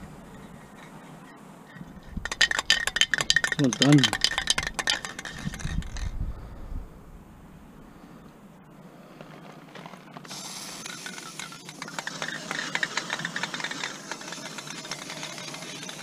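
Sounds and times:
clicks and rattles: 0:01.7 - 0:06.2, 0:09.7 - 0:16.0
spray-paint can hissing: 0:10.3 - 0:16.0.

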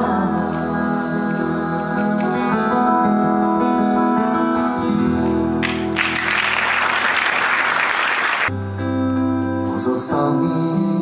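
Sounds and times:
acoustic guitars playing: 0:00.0 - 0:11.0
audience applauding: 0:05.6 - 0:08.5.

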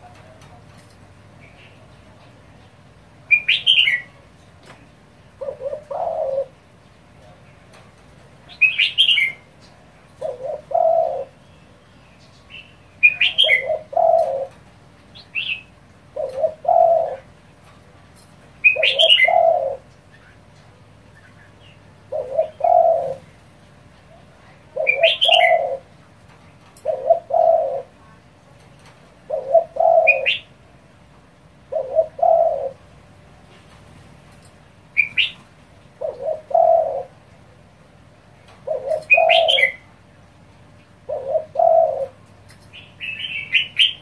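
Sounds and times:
dove cooing: 0:05.2 - 0:11.8, 0:12.5 - 0:17.8, 0:18.6 - 0:28.3, 0:28.9 - 0:30.6, 0:31.5 - 0:33.1, 0:34.9 - 0:40.1, 0:40.8 - 0:44.0.

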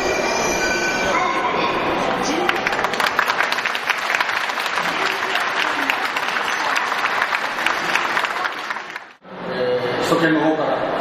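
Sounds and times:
crowd applauding: 0:02.2 - 0:09.2.

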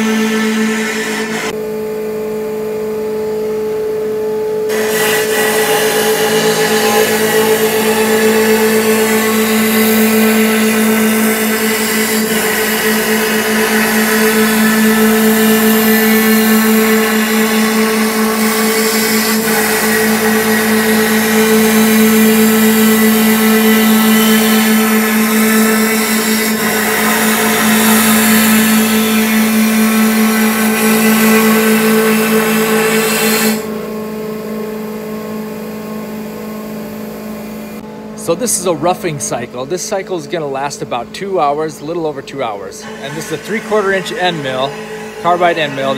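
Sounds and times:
milling machine spindle whine: 0:00.0 - 0:01.6, 0:04.7 - 0:34.0, 0:38.2 - 0:45.9
machine hum: 0:00.0 - 0:45.9
hiss of wood being cut: 0:04.7 - 0:33.7, 0:42.8 - 0:45.9.

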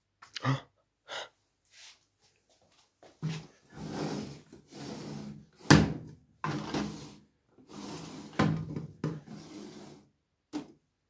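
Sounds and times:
cardboard drawer scraping: 0:06.5 - 0:10.0.

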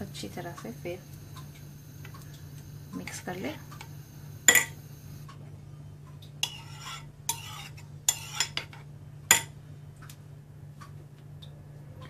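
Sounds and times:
spoon scraping ceramic bowl: 0:06.4 - 0:08.8.

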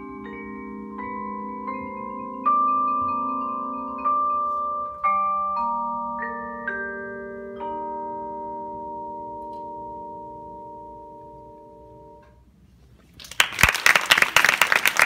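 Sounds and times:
vibraphone chord ringing: 0:00.0 - 0:12.3
audience applause: 0:13.2 - 0:15.0.

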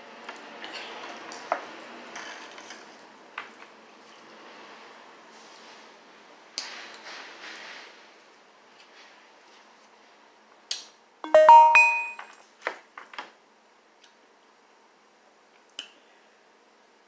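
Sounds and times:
short electronic chime: 0:11.2 - 0:12.2.

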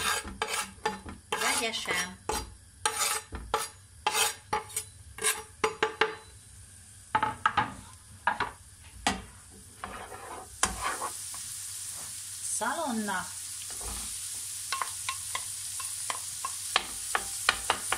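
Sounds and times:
spoon scraping frying pan: 0:00.0 - 0:05.6, 0:08.4 - 0:12.2, 0:13.7 - 0:17.9
faint sizzle of fat: 0:06.3 - 0:17.9.

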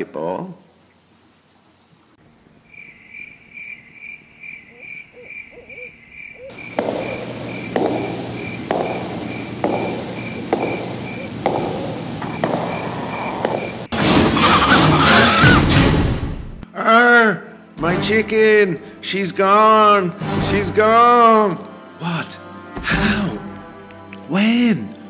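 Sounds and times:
crickets chirping: 0:00.0 - 0:13.9
owl hooting: 0:01.2 - 0:15.6
sudden loud burst: 0:11.5 - 0:16.6.

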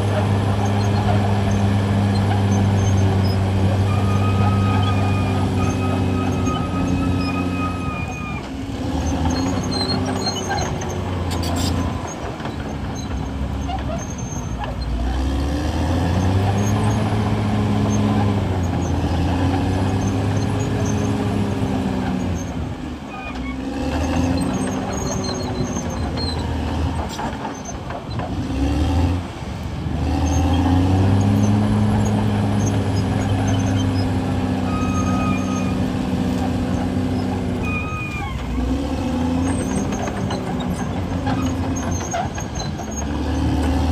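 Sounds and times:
high squealing tone: 0:00.0 - 0:15.0, 0:30.2 - 0:43.4
bulldozer diesel engine working: 0:00.0 - 0:43.9.

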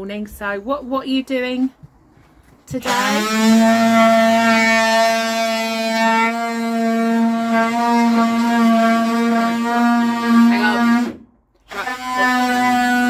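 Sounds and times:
cordless drill whining: 0:02.7 - 0:13.0.

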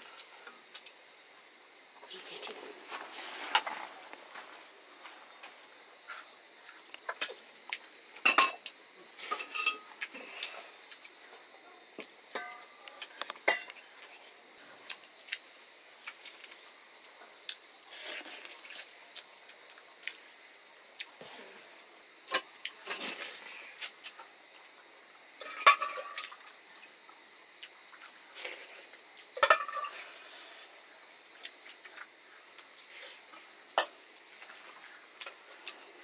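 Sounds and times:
clinks and scrapes of metal plate: 0:09.2 - 0:09.9, 0:12.4 - 0:12.7, 0:29.4 - 0:30.2.

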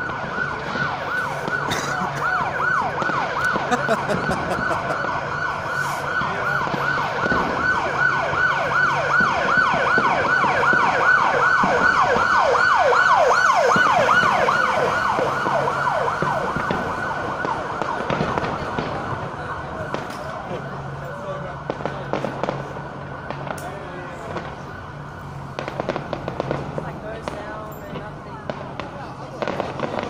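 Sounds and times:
emergency vehicle siren yelping: 0:00.0 - 0:30.0.

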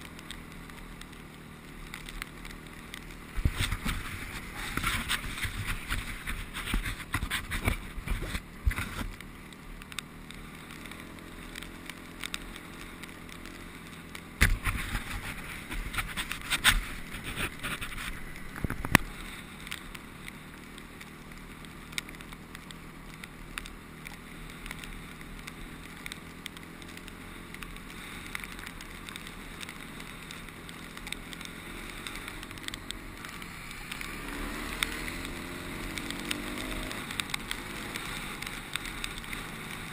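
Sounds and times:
motorcycle engine running: 0:00.0 - 0:39.9
wind noise on camera: 0:03.3 - 0:09.2, 0:14.2 - 0:19.2.

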